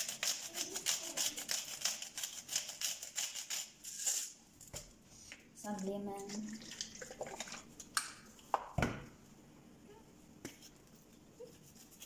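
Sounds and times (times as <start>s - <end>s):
salt mill grinding coarse salt: 0.0s - 4.2s.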